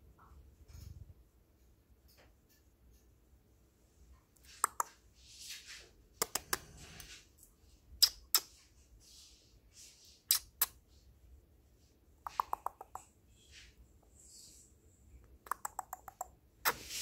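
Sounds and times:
soft breathy puffs: 4.4 - 12.5, 13.2 - 15.2
person making kissing sounds: 4.5 - 5.0, 6.2 - 6.7, 8.0 - 8.6, 10.3 - 10.8, 12.3 - 13.1, 15.4 - 17.0.

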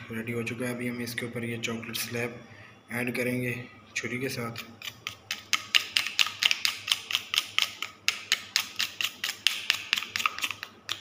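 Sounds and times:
knife scraping chocolate: 4.6 - 11.0.

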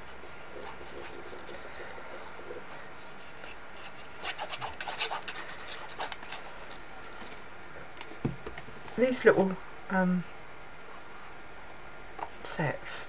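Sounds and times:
faint room noise: 0.0 - 13.0
hands rubbing stiff card: 2.8 - 6.8.

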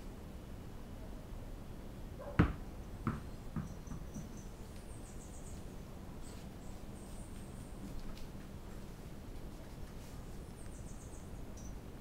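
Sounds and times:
tennis ball bouncing on hard floor: 2.4 - 4.4.

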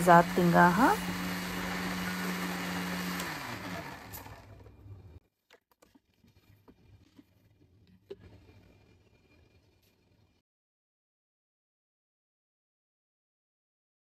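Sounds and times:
mixer grinder running and winding down: 0.0 - 5.2.

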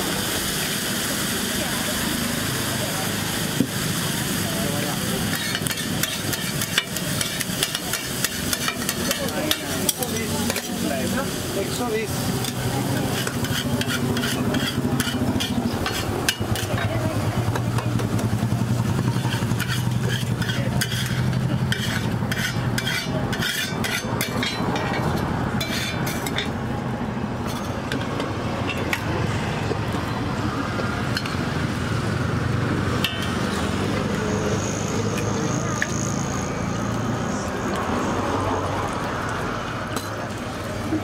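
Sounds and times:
oil and egg sizzling: 0.0 - 26.7
low hum of traffic: 0.0 - 41.0
metal spatula scraping griddle: 5.2 - 17.1, 18.8 - 26.6.

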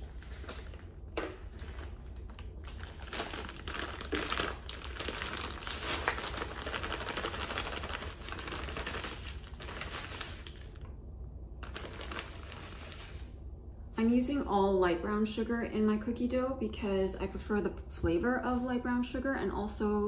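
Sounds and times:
plastic bag crinkling: 0.0 - 10.9, 11.6 - 13.4.

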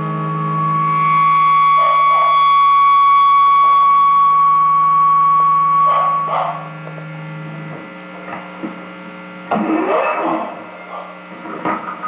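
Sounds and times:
guitar feedback squeal: 0.0 - 7.5
low drone: 0.0 - 8.3
amp mains hum: 0.0 - 12.0.

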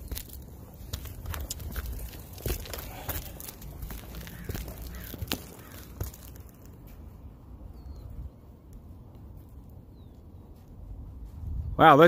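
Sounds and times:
footsteps crunching on roof shingles: 0.0 - 7.2
faint bird chirp: 7.6 - 8.8.

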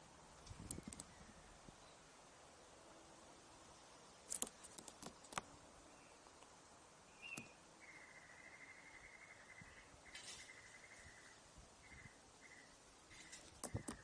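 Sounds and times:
high bird chirp: 7.1 - 14.0.

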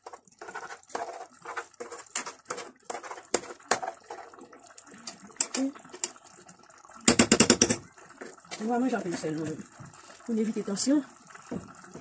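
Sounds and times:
clicks and knocks in pot: 0.0 - 4.4, 5.0 - 6.2, 7.0 - 9.9
pot of vegetables bubbling: 0.0 - 12.0.

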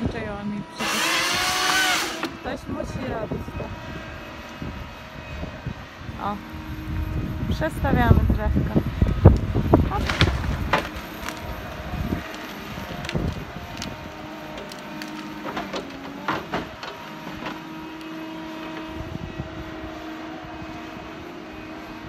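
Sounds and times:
harvester engine running: 0.0 - 22.0
wood snapping and splintering: 9.1 - 18.9.

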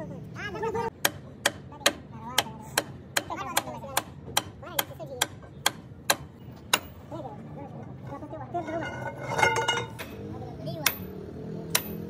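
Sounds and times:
hammer striking steel: 10.8 - 12.0.

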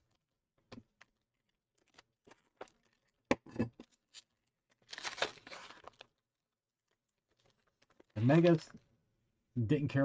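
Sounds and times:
foil wrapper crinkling: 4.0 - 6.2
foil wrapper tearing: 4.1 - 6.1.

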